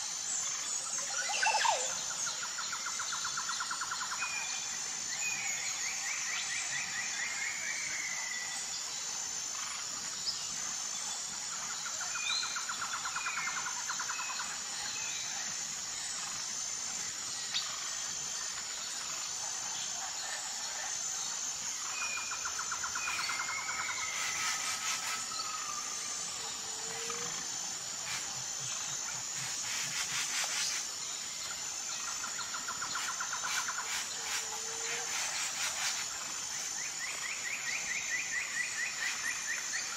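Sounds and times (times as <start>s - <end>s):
high-pitched insect drone: 0.0s - 39.9s.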